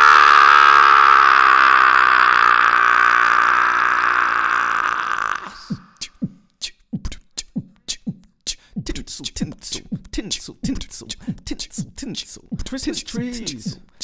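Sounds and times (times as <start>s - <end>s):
beatboxed kick-drum thumps: 5.5s - 14.0s.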